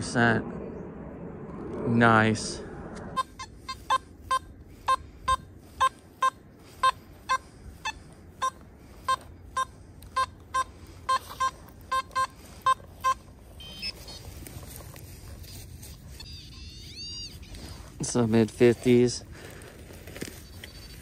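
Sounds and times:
metal detector beeps: 0:03.2 - 0:17.9.

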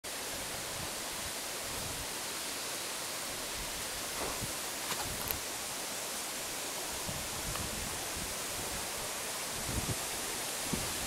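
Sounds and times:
wind noise: 0:00.3 - 0:02.2, 0:03.3 - 0:05.5, 0:06.8 - 0:11.0
wind buffeting microphone: 0:03.6 - 0:05.4, 0:06.9 - 0:11.0.

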